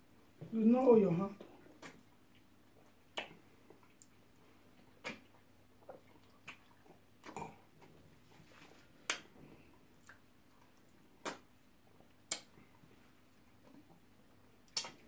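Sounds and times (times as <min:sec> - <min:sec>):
wet mouth smacks and clicks: 0:01.8 - 0:02.0, 0:02.8 - 0:04.2, 0:05.0 - 0:07.5, 0:09.1 - 0:09.3, 0:11.2 - 0:11.5, 0:12.3 - 0:12.6, 0:14.7 - 0:15.0.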